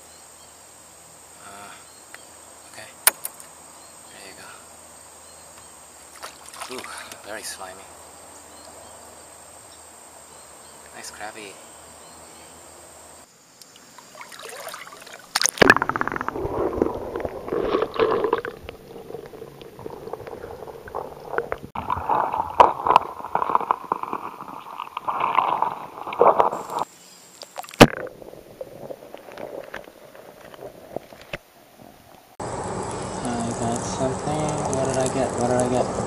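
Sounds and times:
muffled underwater gurgling: 0:15.6 - 0:26.8.

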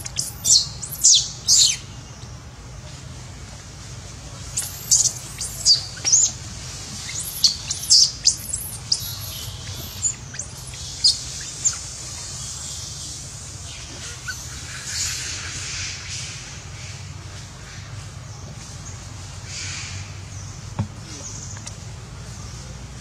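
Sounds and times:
high-pitched chirping calls: 0:00.0 - 0:02.0, 0:04.5 - 0:16.3.

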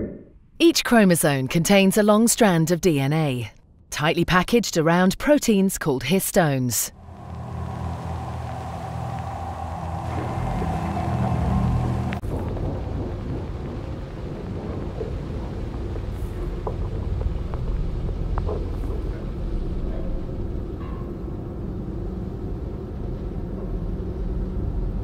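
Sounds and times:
faint tonal blips: 0:06.9 - 0:13.2
low rumbling ambient drone: 0:06.9 - 0:25.0.

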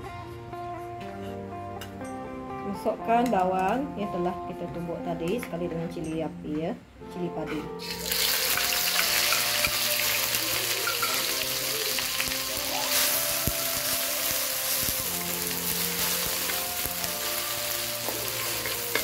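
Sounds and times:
paste sizzling in hot oil: 0:07.8 - 0:19.0.

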